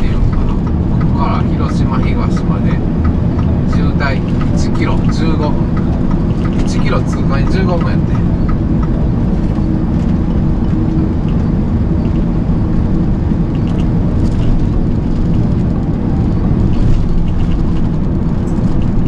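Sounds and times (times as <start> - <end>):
truck engine and road rumble: 0.0 - 19.0.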